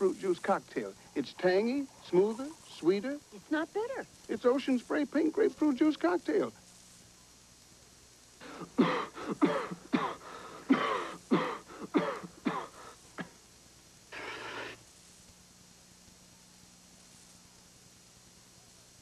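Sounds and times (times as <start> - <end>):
breathy burst: 8.4 - 13.3, 14.1 - 14.8
people coughing: 8.5 - 13.4.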